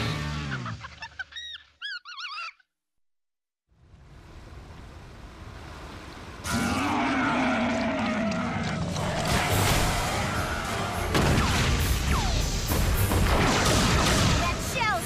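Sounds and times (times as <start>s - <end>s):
rushing rumble: 3.7s - 11.2s.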